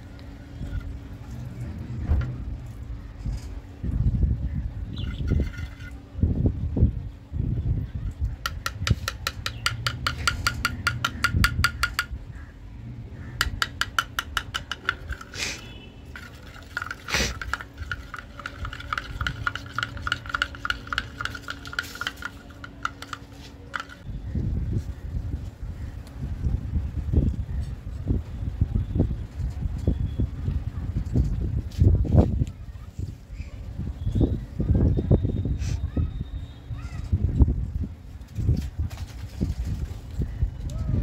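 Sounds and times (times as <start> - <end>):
spoon scraping glass dish: 14.6 - 24.0.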